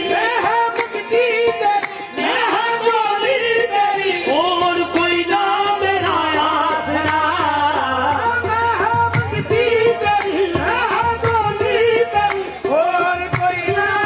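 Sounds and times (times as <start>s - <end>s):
tabla: 0.0s - 14.0s.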